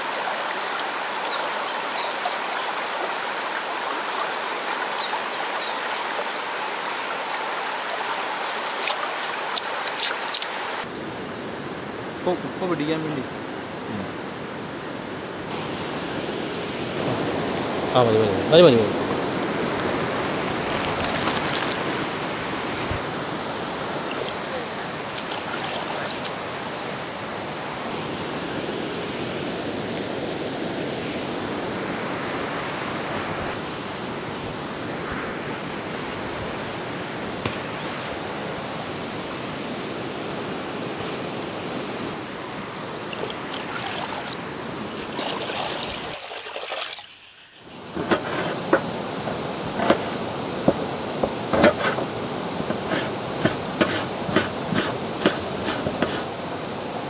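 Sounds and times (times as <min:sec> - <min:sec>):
river water running: 0:00.0 - 0:57.0
hands splashing in water: 0:25.1 - 0:26.4.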